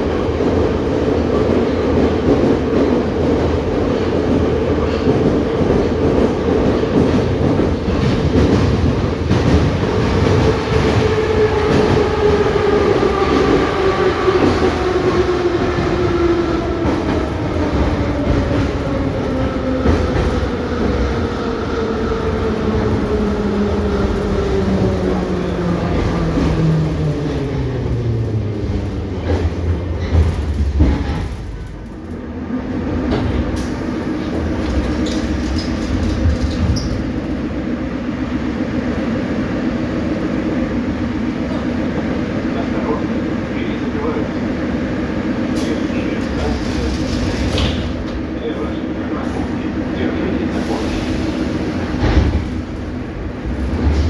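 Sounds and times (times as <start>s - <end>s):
train wheels clickety-clack: 0.4s - 21.3s, 28.7s - 32.2s, 32.9s - 37.2s, 45.5s - 52.8s.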